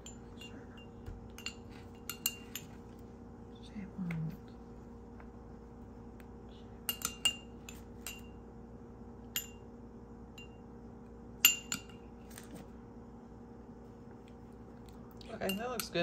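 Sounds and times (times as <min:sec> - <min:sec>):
metal spoon clinking on bowl: 0:00.0 - 0:02.7, 0:06.8 - 0:08.4, 0:09.3 - 0:09.6, 0:10.4 - 0:10.6, 0:11.4 - 0:12.0, 0:15.3 - 0:16.0.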